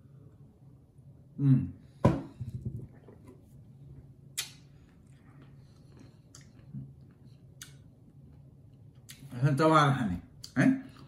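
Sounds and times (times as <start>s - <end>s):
steady low hum: 0.0s - 11.0s
lip and mouth sounds: 5.9s - 7.8s.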